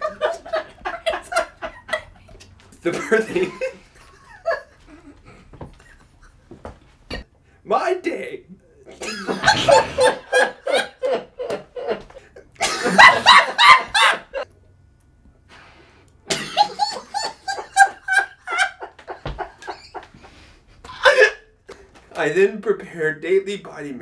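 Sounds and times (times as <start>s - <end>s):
man laughing hard: 0.0s - 2.2s, 2.9s - 6.6s, 8.9s - 14.4s, 16.3s - 21.5s.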